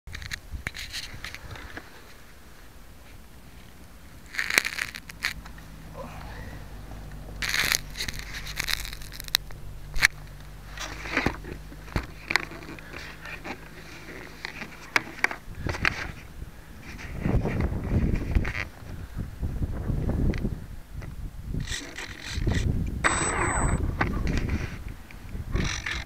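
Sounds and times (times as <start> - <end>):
camera handling crackles and scrapes: 0.1 - 2.2, 4.3 - 5.7, 7.2 - 16.2, 21.6 - 23.4, 25.6 - 26.0
faint low hum: 1.3 - 25.1.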